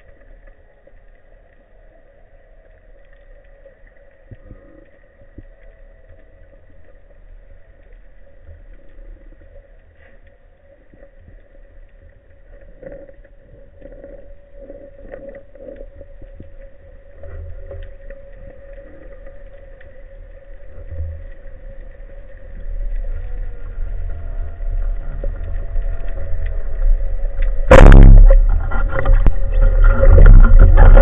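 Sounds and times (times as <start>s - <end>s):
faint clicks: 0.0s - 27.7s
underwater rumble of moving water: 0.0s - 31.0s
steady hum: 27.4s - 31.0s.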